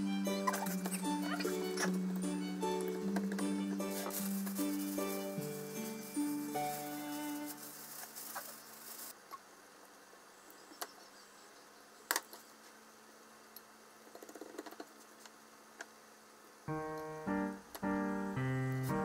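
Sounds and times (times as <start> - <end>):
background music: 0.0 - 7.8, 16.7 - 19.0
piano music: 0.0 - 8.0, 16.7 - 19.0.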